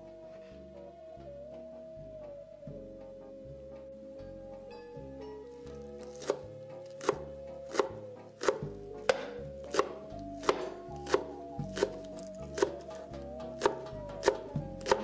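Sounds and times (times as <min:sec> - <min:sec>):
soft background music: 0:00.0 - 0:15.0
knife chopping on wooden board: 0:06.0 - 0:13.0, 0:13.6 - 0:15.0.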